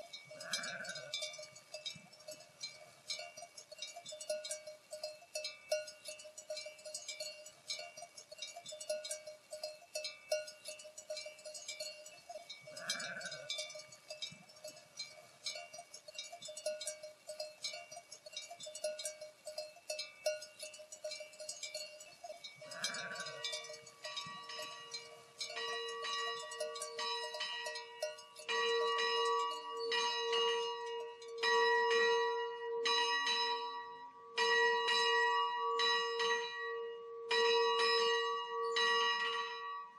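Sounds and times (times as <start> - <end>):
sheep bells clinking: 0.0 - 39.9
church bell ringing: 23.2 - 39.9.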